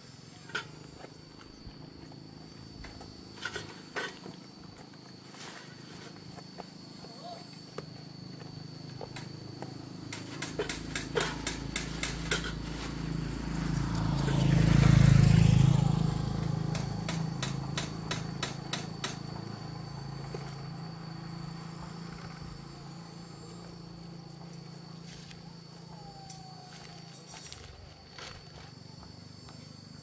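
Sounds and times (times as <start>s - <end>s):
vehicle engine passing: 10.6s - 26.6s.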